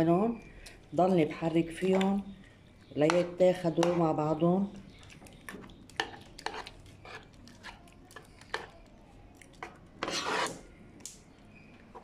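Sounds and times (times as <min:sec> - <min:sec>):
spoon knocking on pot: 0:03.1 - 0:04.1
spoon scraping a pot: 0:05.5 - 0:08.7, 0:09.6 - 0:10.7.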